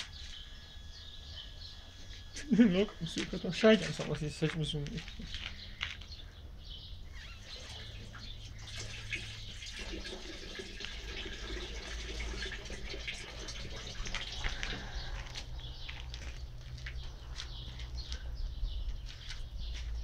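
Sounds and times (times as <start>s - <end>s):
steady low rumble: 13.6s - 20.0s.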